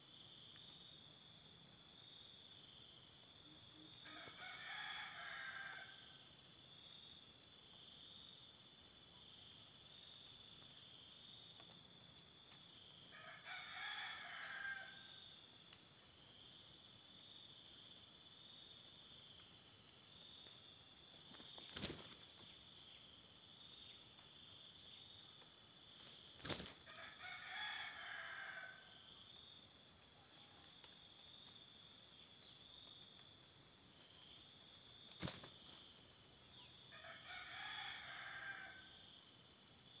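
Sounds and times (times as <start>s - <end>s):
pulsing insect chorus: 0.0s - 40.0s
roosters crowing: 4.1s - 6.0s, 13.1s - 15.2s, 26.8s - 29.0s, 37.0s - 38.9s.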